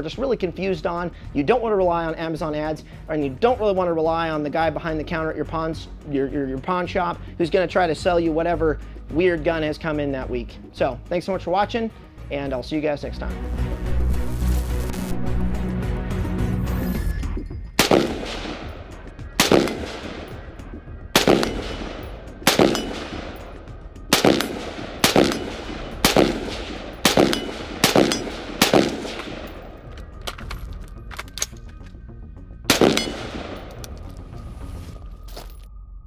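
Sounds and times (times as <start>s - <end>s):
rifle shots with echo: 17.8s - 30.4s, 32.7s - 33.9s.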